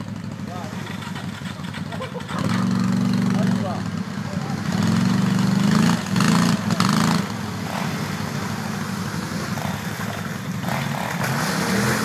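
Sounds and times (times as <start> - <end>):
quad bike engine running: 0.0 - 12.0
water splashing and rushing: 4.5 - 12.0.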